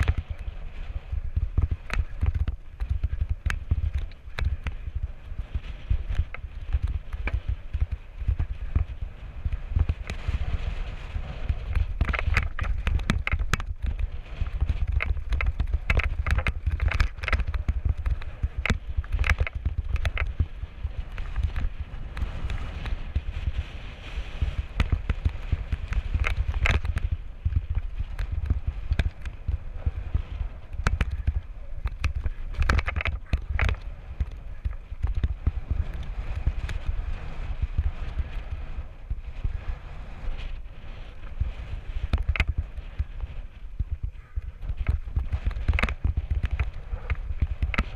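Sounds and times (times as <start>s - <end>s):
wind rumble on microphone: 0.0s - 47.9s
bike and tyres clattering over rocks: 1.0s - 36.8s, 41.7s - 47.9s.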